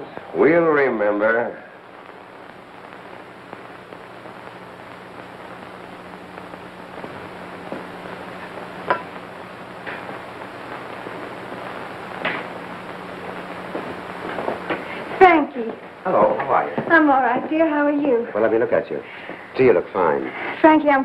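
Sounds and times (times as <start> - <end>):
film soundtrack hiss and hum: 0.0 - 21.0.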